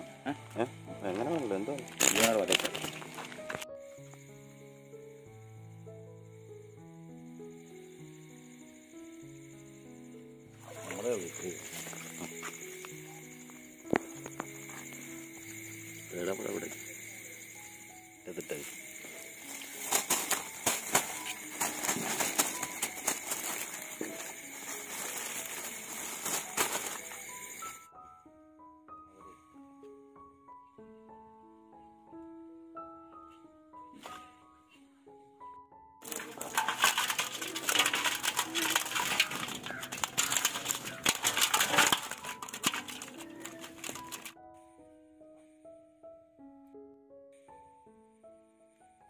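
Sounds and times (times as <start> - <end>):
wet fishing net rustling and clicking: 1.3 - 3.7, 19.2 - 27.8, 36.0 - 44.4.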